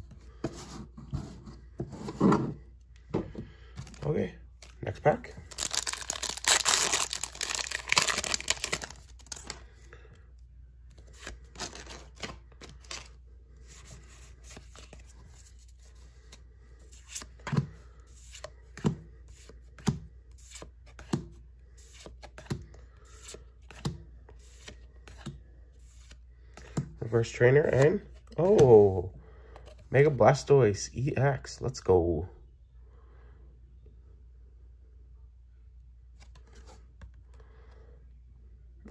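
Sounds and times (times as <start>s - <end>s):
foil wrapper tearing and crinkling: 5.5s - 9.6s.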